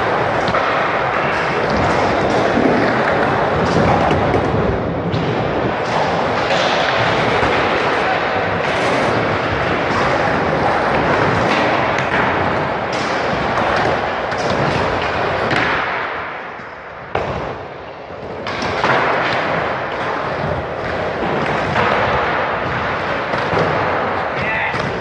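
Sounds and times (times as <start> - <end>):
skateboard knocking and landing: 0.0 - 16.3, 18.2 - 25.0
skateboard wheels rolling on concrete: 0.0 - 25.0.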